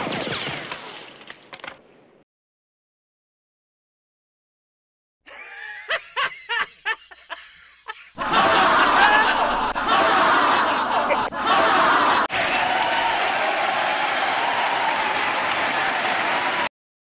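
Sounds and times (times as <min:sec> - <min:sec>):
cartoon character laughing: 0:05.3 - 0:12.3
studio audience laugh track: 0:05.3 - 0:12.3.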